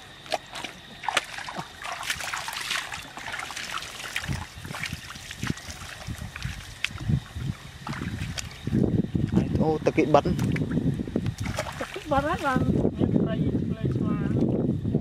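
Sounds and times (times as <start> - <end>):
muddy water splashing: 0.0 - 8.9, 10.3 - 12.8.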